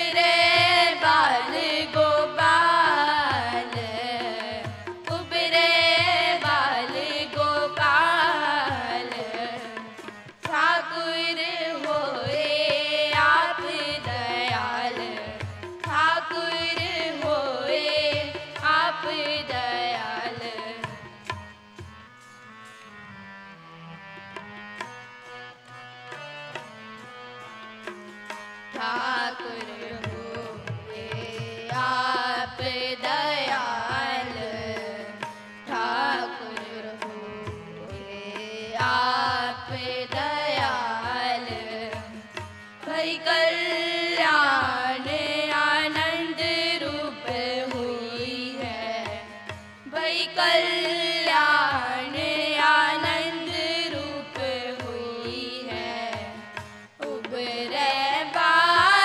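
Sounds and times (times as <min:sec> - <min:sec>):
tabla beat: 0:00.0 - 0:23.2, 0:23.8 - 0:59.0
harmoniums playing: 0:00.0 - 0:59.0.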